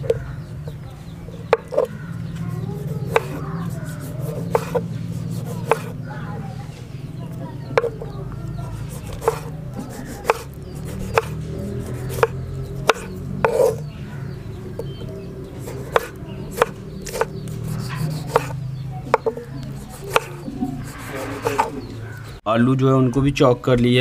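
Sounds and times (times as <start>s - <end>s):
knife chopping on wooden board: 1.5s - 6.0s, 7.8s - 8.0s, 8.8s - 13.9s, 15.6s - 21.7s.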